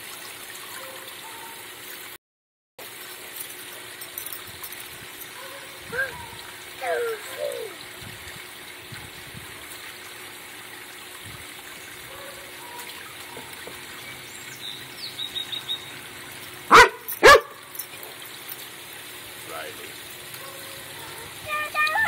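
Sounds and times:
fountain splashing: 0.0s - 2.2s, 2.8s - 22.0s
dog barking: 12.1s - 13.5s, 16.7s - 17.6s.

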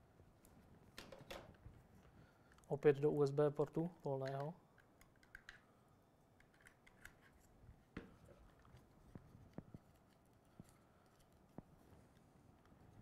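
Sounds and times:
faint clicks of cables plugged in: 3.7s - 4.6s.

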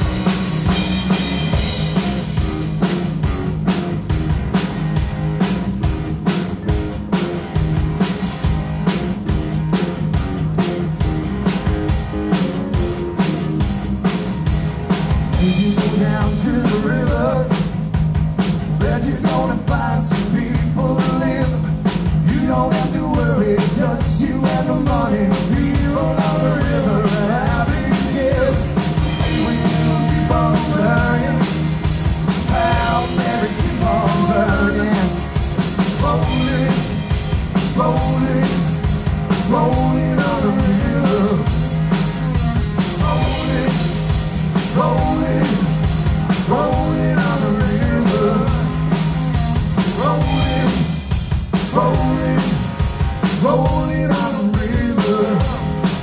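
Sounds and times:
drum kit: 0.0s - 56.0s
electric bass: 0.0s - 56.0s
electric guitar: 0.0s - 56.0s
man singing lead vocal: 15.3s - 18.0s, 18.7s - 31.7s, 32.3s - 41.8s, 42.8s - 56.0s.

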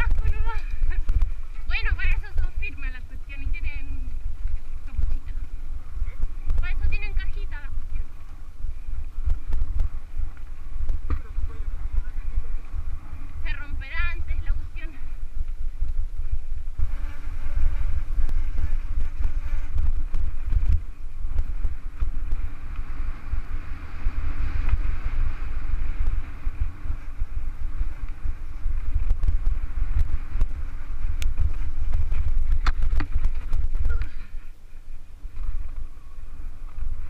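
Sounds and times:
wind rumble on microphone: 0.0s - 37.0s
bike knocks and rattles: 24.1s - 34.2s.

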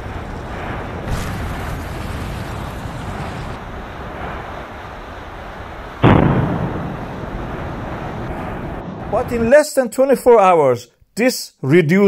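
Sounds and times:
loud volcanic blast: 0.0s - 9.6s
volcanic rumble: 0.0s - 9.6s.

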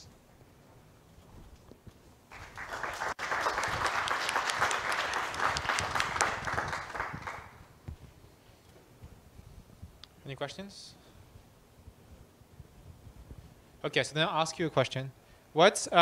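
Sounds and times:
audience applauding: 2.3s - 7.6s.

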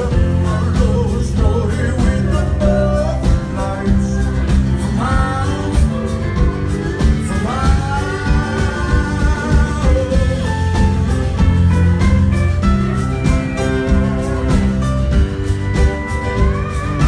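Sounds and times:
man singing long notes: 0.0s - 11.3s
acoustic guitar: 0.0s - 17.0s
country band playing: 0.0s - 17.0s.

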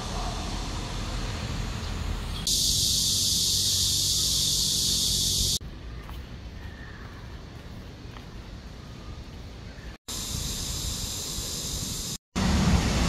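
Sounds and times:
low traffic rumble: 0.0s - 13.0s
cicadas buzzing chorus: 2.4s - 5.6s, 10.1s - 12.2s.

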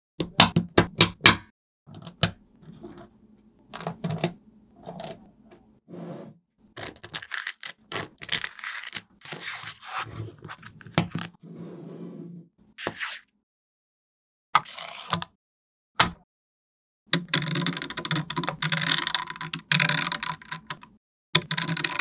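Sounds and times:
balls rattling and scraping: 17.2s - 22.0s
magnetic balls clicking: 17.2s - 22.0s.

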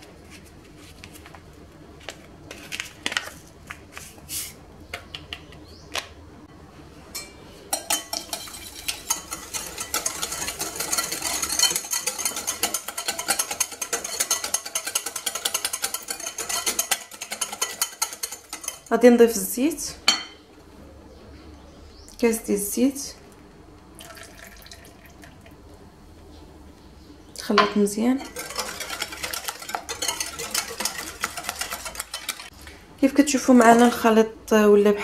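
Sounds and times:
wire whisk clattering in glass bowl: 7.2s - 19.0s, 28.2s - 32.5s.

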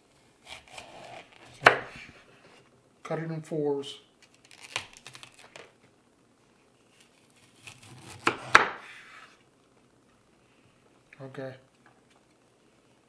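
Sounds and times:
knife cutting cauliflower: 0.4s - 2.2s, 7.0s - 9.3s.

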